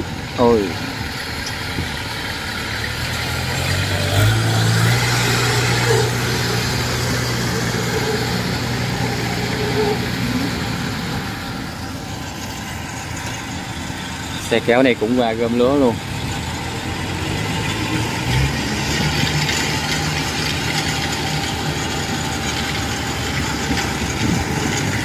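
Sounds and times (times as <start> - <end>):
tracked cart engine running: 0.0 - 25.0.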